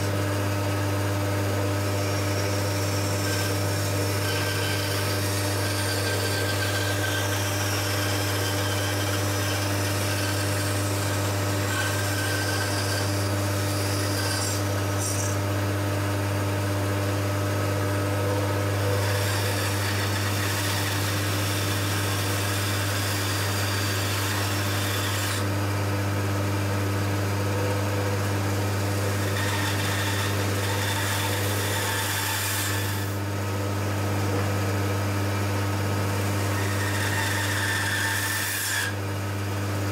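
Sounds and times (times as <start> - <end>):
band saw motor hum: 0.0 - 39.9
saw blade cutting wood: 1.8 - 15.4, 18.2 - 25.6, 28.1 - 33.3, 36.2 - 39.0.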